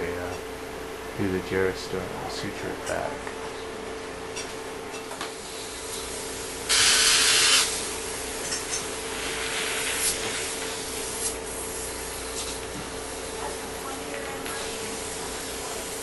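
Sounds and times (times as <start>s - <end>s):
low equipment hum: 0.0s - 16.0s
hissing air burst: 6.7s - 7.8s.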